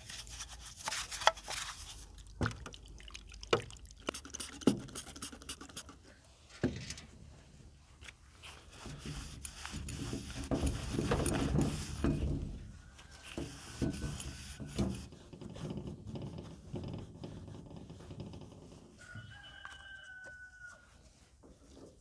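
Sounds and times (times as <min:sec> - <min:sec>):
wiping a shaft: 0:00.0 - 0:02.2, 0:04.1 - 0:06.1, 0:08.0 - 0:18.8
rag rubbing metal: 0:08.8 - 0:12.3.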